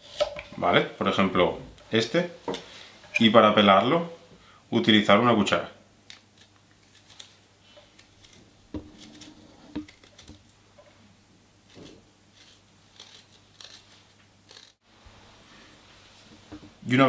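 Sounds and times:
spoon scraping ginger: 0:11.7 - 0:14.8.

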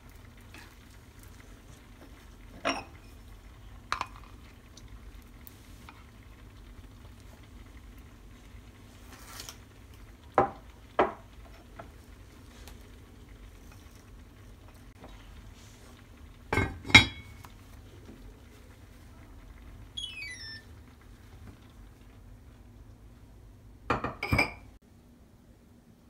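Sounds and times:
short falling electronic beep: 0:20.0 - 0:20.7.

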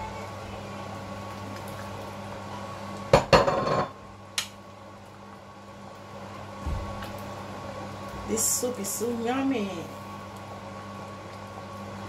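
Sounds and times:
utensils knocking on metal pot: 0:03.2 - 0:03.9.

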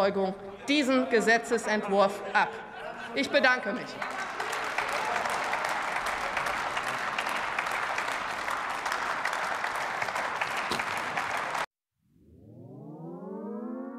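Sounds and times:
crowd applauding: 0:03.7 - 0:11.7
siren wail: 0:12.2 - 0:13.9.

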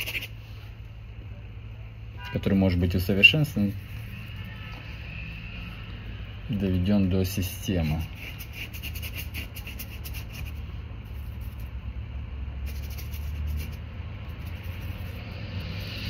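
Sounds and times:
paintbrush scrubbing on canvas: 0:00.0 - 0:00.4, 0:07.8 - 0:11.7, 0:12.6 - 0:16.0
low hum: 0:10.4 - 0:16.0.

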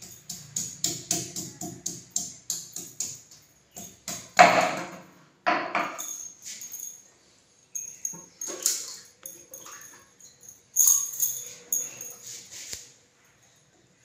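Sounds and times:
wooden pestle pounding on board: 0:00.0 - 0:03.2
metal bracelet jingling: 0:05.8 - 0:07.0, 0:07.7 - 0:12.5.

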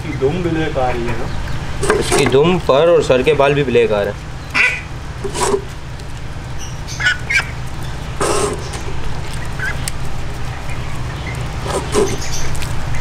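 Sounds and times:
steady low hum: 0:00.0 - 0:13.0
duck squawking: 0:04.4 - 0:05.8, 0:06.6 - 0:13.0.

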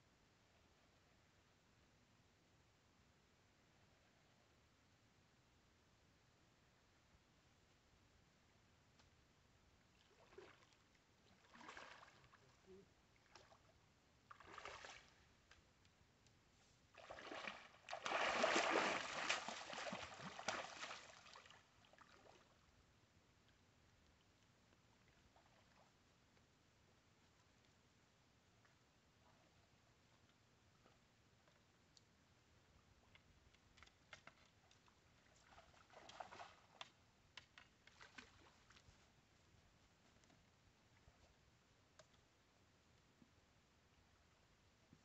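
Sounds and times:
water splashing and sloshing: 0:09.9 - 0:15.3, 0:16.9 - 0:22.6, 0:33.8 - 0:37.0, 0:37.6 - 0:39.1
soft rustle: 0:16.4 - 0:22.5, 0:37.7 - 0:42.3
faint irregular clicks: 0:30.2 - 0:32.2, 0:33.0 - 0:35.0, 0:36.1 - 0:39.0, 0:41.2 - 0:43.3.

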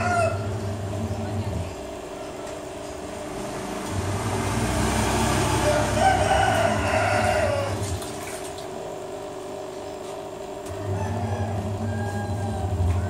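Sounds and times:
rooster crowing: 0:00.0 - 0:00.6, 0:05.1 - 0:08.0, 0:10.6 - 0:13.0
steady low hum: 0:00.0 - 0:13.0.

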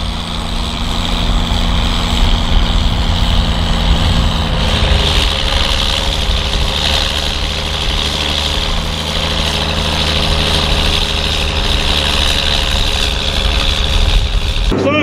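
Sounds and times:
high whine: 0:00.0 - 0:15.0
tractor diesel engine under load: 0:00.0 - 0:15.0.

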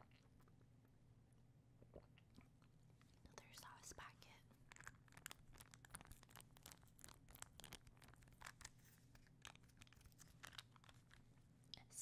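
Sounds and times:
taco shell crunching while chewed: 0:04.5 - 0:11.4.

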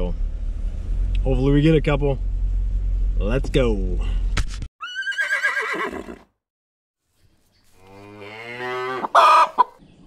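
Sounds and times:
horse whinny: 0:04.8 - 0:06.3
cow mooing: 0:07.8 - 0:09.3.

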